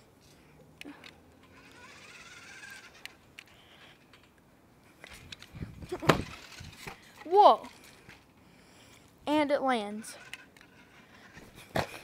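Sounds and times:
toy truck bouncing on trampoline: 0.9 - 4.4, 5.0 - 8.3, 9.9 - 12.0.

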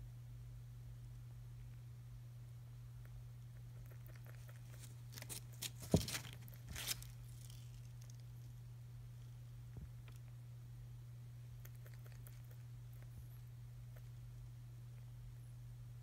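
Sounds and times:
paper rustling and crinkling: 4.6 - 8.2.

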